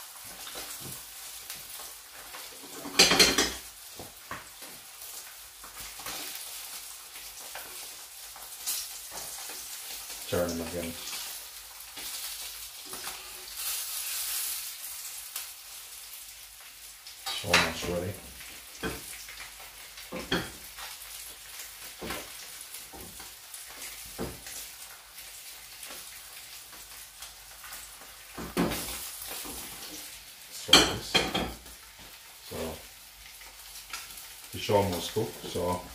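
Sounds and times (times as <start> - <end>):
fish sizzling in a frying pan: 0.0 - 35.9
pans and utensils clattering: 2.5 - 3.7, 20.1 - 20.6, 30.6 - 31.7.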